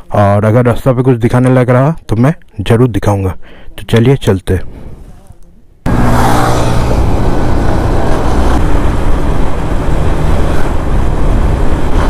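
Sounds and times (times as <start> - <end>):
wind rushing on microphone: 5.9 - 12.0.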